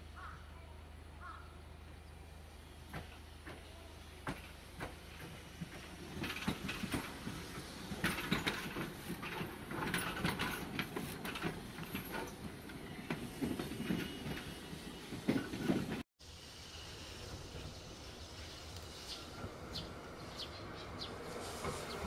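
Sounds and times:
street ambience: 0.0 - 22.0
streetcar rumbling past: 0.0 - 22.0
wheels clattering on track: 2.9 - 16.0.

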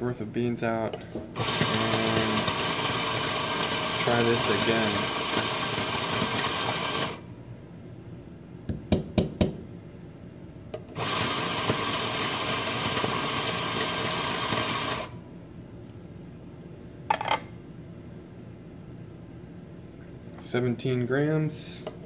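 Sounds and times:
coffee grinder running: 1.4 - 7.2, 11.0 - 15.2.

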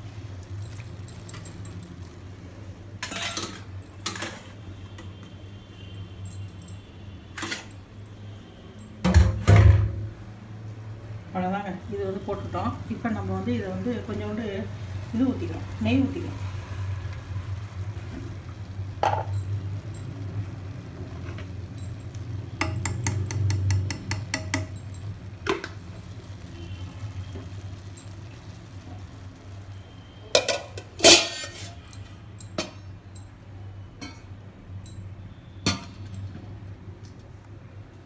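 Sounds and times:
utensils clinking against pan: 0.6 - 2.1, 3.0 - 4.6, 7.4 - 7.8, 21.2 - 25.9, 30.3 - 33.3, 34.0 - 35.0, 35.6 - 36.3.

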